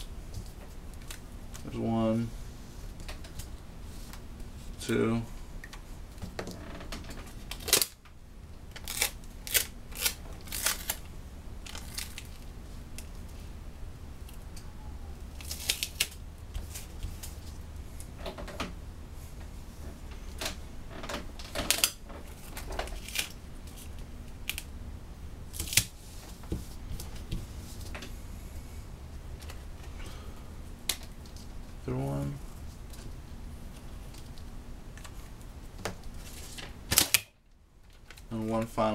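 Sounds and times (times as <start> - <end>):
low steady hum: 0.0 - 38.9
tape and sheet crinkling: 0.3 - 1.7, 6.4 - 8.0, 8.7 - 13.4, 15.3 - 17.6, 21.4 - 24.7, 25.5 - 27.9, 35.0 - 38.7.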